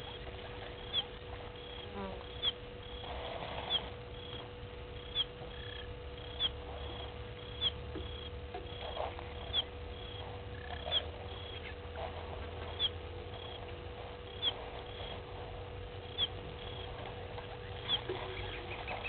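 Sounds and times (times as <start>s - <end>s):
small animal chirping: 0.0s - 11.8s, 16.0s - 19.0s
faint hum and low rumble: 0.0s - 19.0s.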